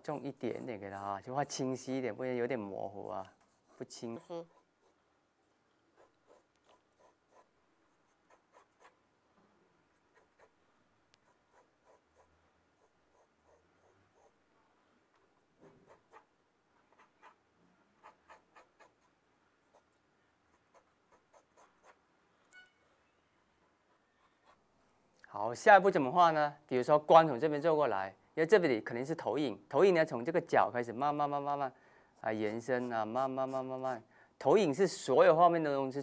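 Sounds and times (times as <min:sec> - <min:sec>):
pencil scratching on paper: 0:02.9 - 0:09.0, 0:09.9 - 0:10.6, 0:11.2 - 0:14.4, 0:15.6 - 0:16.3, 0:16.9 - 0:22.0, 0:32.2 - 0:33.9.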